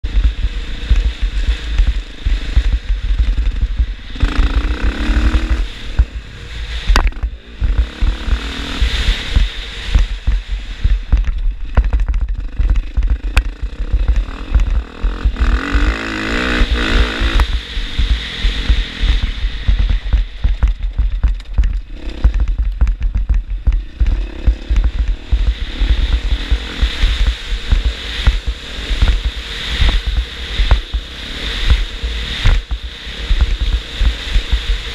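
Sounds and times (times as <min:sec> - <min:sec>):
dirt bike engine revving: 0:00.0 - 0:34.9
wind buffeting: 0:00.0 - 0:34.9.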